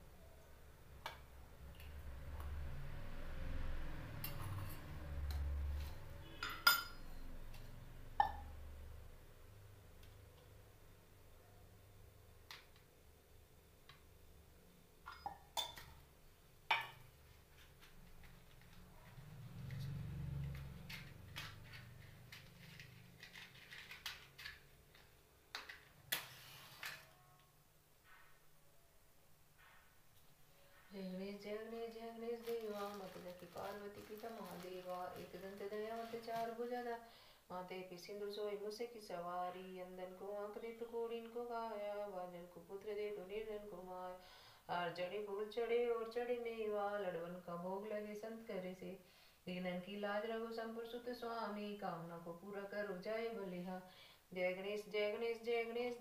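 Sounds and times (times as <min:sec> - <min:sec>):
kitchen utensils clinking: 0:06.2 - 0:07.2, 0:15.1 - 0:16.0.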